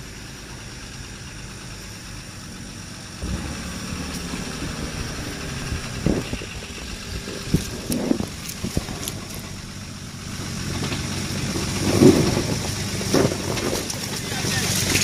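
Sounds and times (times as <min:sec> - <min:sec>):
vehicle engine under load: 0:00.0 - 0:15.0.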